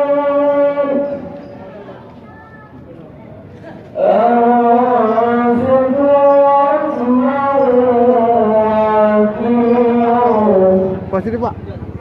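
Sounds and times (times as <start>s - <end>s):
man chanting: 0.0s - 1.3s, 4.0s - 11.2s.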